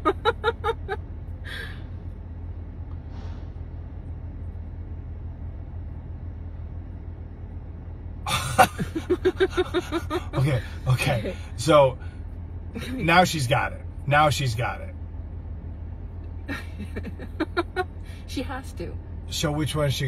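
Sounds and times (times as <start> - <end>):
bursts of laughter: 0.0 - 1.0, 8.3 - 10.6
car cabin hum: 0.0 - 20.0.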